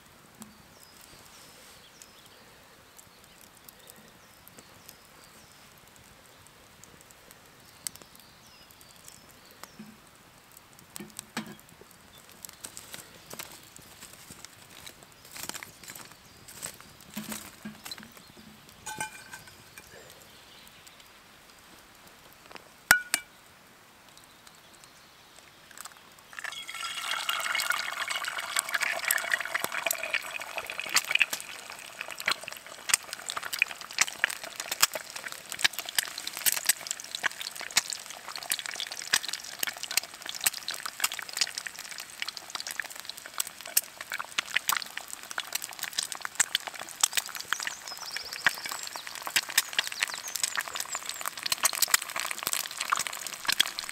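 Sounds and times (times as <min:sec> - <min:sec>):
clink: 0:18.9 - 0:19.5
egg sizzling in a frying pan: 0:25.7 - 0:53.9.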